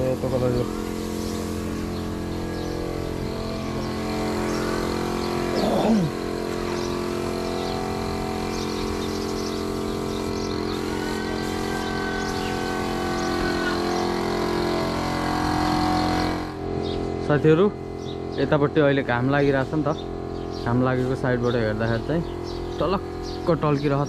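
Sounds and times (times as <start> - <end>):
machine droning hum: 0.0 - 24.0.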